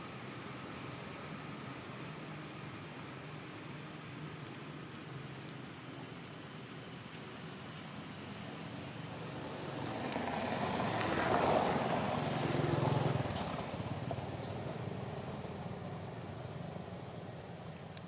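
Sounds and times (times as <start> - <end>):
vehicle engine passing by: 9.0 - 15.8.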